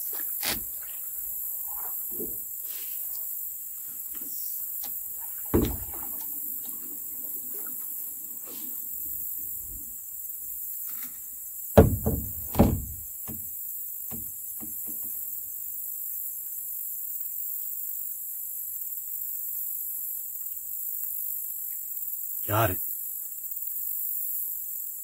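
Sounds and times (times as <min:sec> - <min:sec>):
high insect drone: 0:00.0 - 0:25.0
heavy thumps in a canoe: 0:04.9 - 0:06.8, 0:11.8 - 0:15.2.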